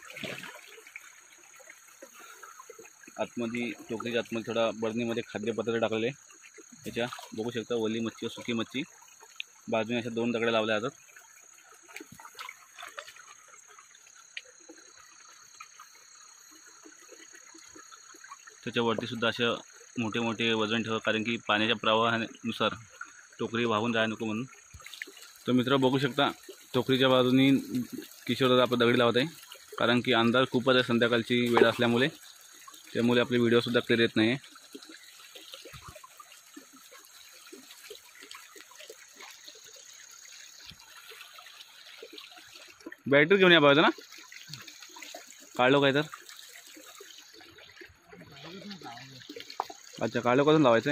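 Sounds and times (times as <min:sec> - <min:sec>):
stones splashing into water: 0:00.0 - 0:01.0, 0:11.8 - 0:13.6, 0:31.3 - 0:32.2
crickets chirring: 0:00.0 - 0:50.9
small water splashes: 0:00.0 - 0:50.9
faint ticks: 0:09.1 - 0:09.6, 0:13.8 - 0:18.6.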